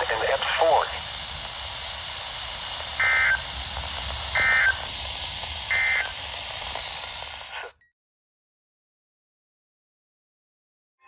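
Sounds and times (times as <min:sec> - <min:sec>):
alert radio data bursts: 0:00.0 - 0:07.8
radio hiss: 0:00.0 - 0:07.8.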